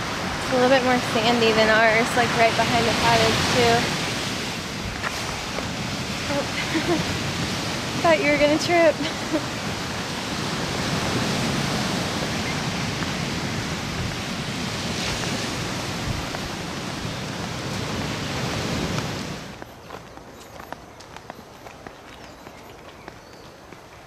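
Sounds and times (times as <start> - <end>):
ocean surf washing ashore: 0.0 - 19.6
faint footsteps on dirt path: 4.7 - 8.1, 12.1 - 14.4, 15.0 - 24.0.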